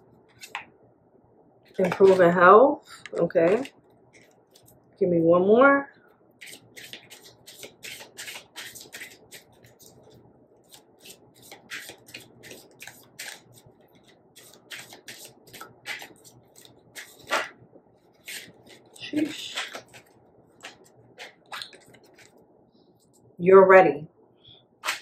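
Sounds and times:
cards being shuffled: 0.3s - 0.7s, 1.7s - 2.3s, 6.4s - 22.4s
card slap: 17.0s - 17.6s.

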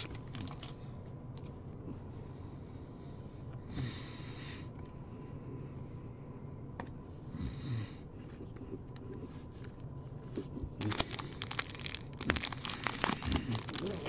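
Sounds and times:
foil wrapper crinkling: 0.0s - 0.8s, 10.8s - 14.0s.

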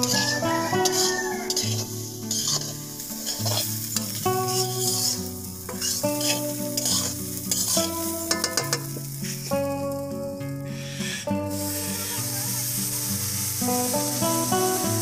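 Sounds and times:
metal spatula scraping a wok: 0.0s - 9.7s
food sizzling: 0.0s - 15.0s
instrumental music: 0.0s - 15.0s.

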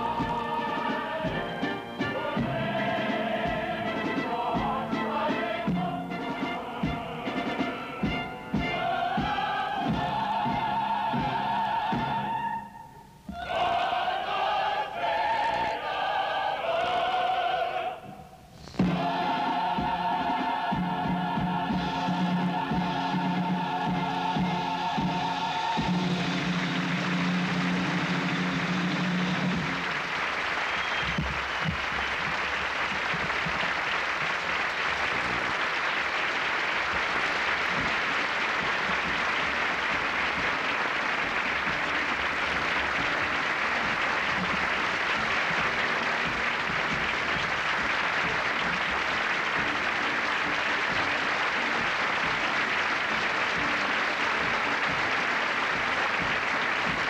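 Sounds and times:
choral music: 0.0s - 30.3s, 33.5s - 57.0s
audience applauding: 23.9s - 57.0s.

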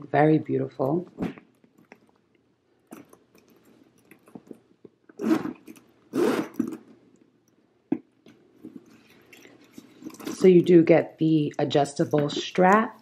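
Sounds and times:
zipper rasping open: 5.1s - 6.9s.

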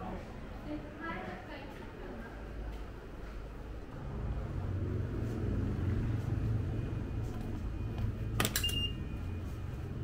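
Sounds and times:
low steady rumble: 3.8s - 10.0s
ticket gate beep: 8.5s - 9.2s.

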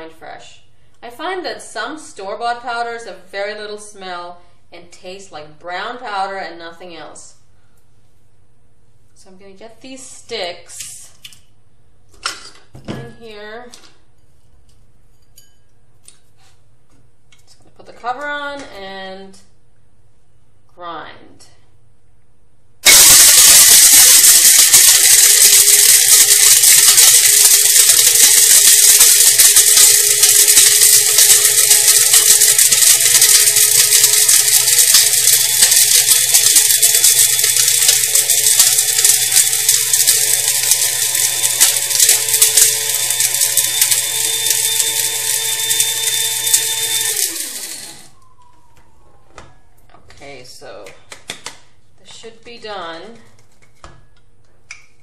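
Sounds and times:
blade grinder rattling: 22.8s - 48.1s
motor winding down whine: 22.8s - 49.0s.

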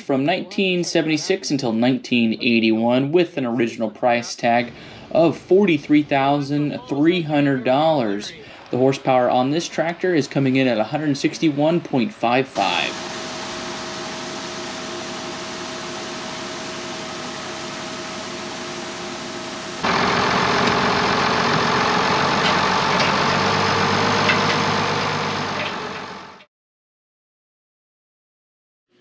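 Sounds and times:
tractor diesel engine running: 4.4s - 26.5s.

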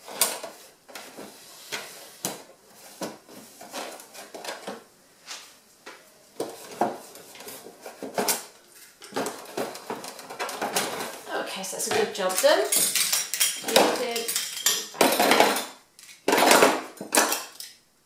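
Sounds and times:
cutlery clinking in plastic tray: 11.8s - 17.8s.

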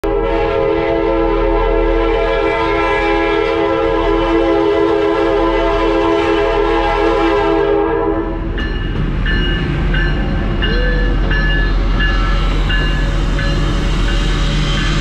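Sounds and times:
locomotive air horn: 0.0s - 8.5s
locomotive low rumble: 6.5s - 15.0s.

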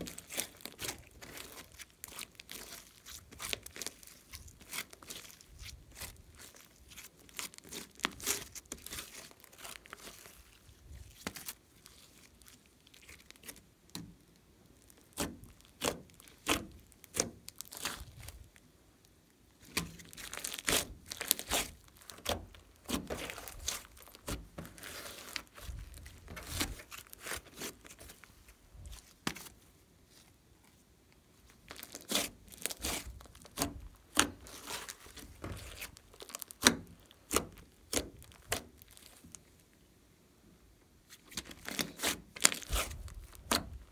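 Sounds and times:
hands kneading slime: 0.0s - 39.6s, 41.0s - 43.9s.

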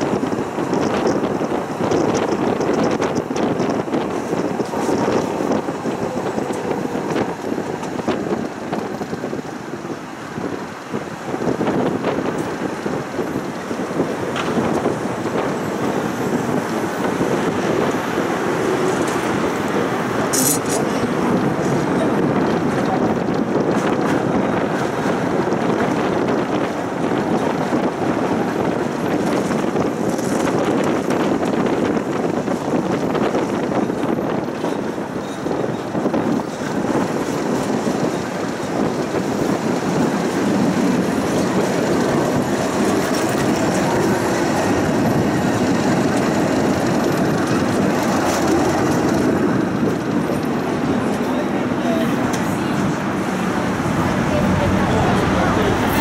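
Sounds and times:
tram running on track: 0.0s - 56.0s
wind buffeting microphone: 0.0s - 56.0s.

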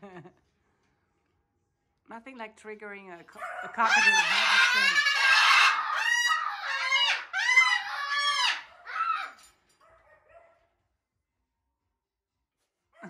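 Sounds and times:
cockatoo screaming: 3.6s - 9.5s.

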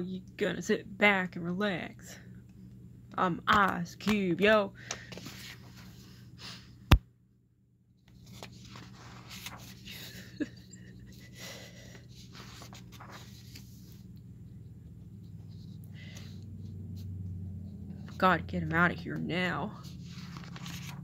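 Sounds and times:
steady low hum: 8.4s - 21.0s
person sniffling and wheezing: 9.8s - 12.5s.

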